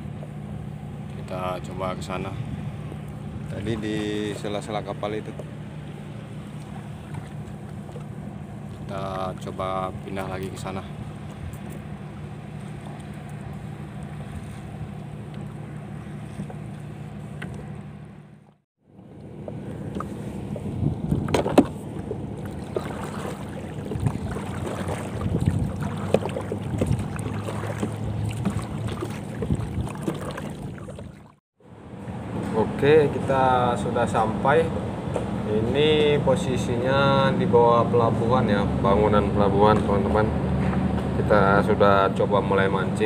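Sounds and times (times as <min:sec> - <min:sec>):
steady low hum: 0:00.0 - 0:43.0
oar strokes splashing water: 0:05.2 - 0:17.8, 0:19.5 - 0:31.4
wind on microphone: 0:19.8 - 0:31.2
knocks against boat hull: 0:21.1 - 0:21.8.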